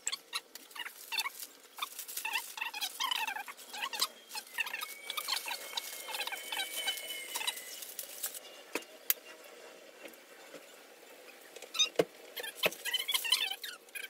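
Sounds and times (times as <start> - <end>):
plastic packaging crinkling: 0.4 - 8.4.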